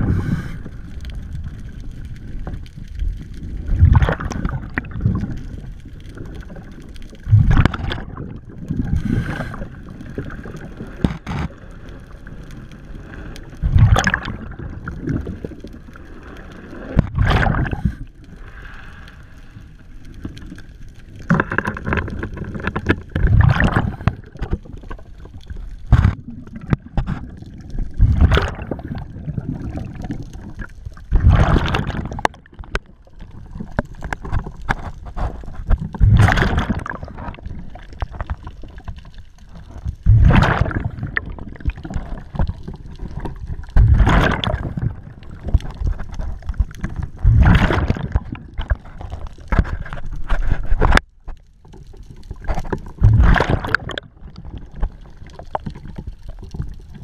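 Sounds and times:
diver breathing through regulator: 0.0s - 0.9s, 8.9s - 9.8s, 17.7s - 19.7s
bubbles bursting and gurgling: 0.0s - 18.4s, 19.8s - 51.0s, 51.8s - 57.0s
murky water noise: 0.0s - 57.0s.

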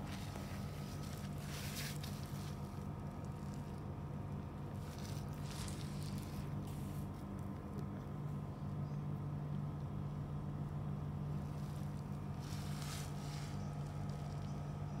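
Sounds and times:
rustling: 0.0s - 3.9s, 4.7s - 7.5s, 11.4s - 14.7s.

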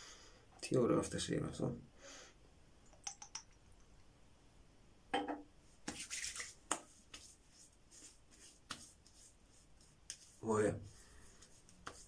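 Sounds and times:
hands slapping face: 5.9s - 7.3s, 8.6s - 9.2s, 11.4s - 12.0s.

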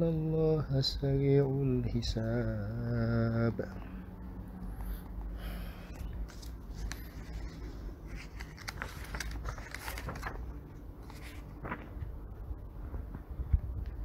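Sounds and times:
low room hum: 0.0s - 14.0s
faint rustles and clicks: 5.9s - 14.0s.

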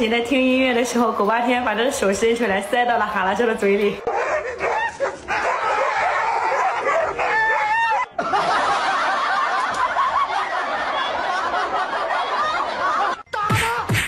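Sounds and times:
dogs barking and whining: 4.0s - 8.2s
dogs yelping: 4.0s - 8.2s.

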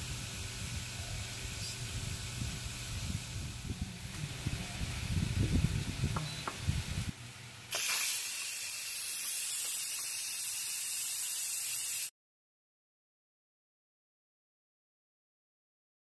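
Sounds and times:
pressure cooker venting steam: 0.0s - 12.1s.

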